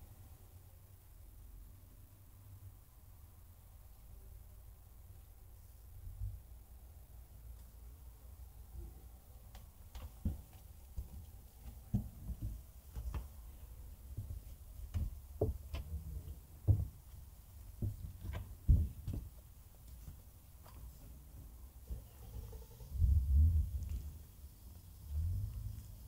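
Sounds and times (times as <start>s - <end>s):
footsteps on wooden boards: 9.4s - 21.6s
steady low rumble: 21.1s - 26.0s.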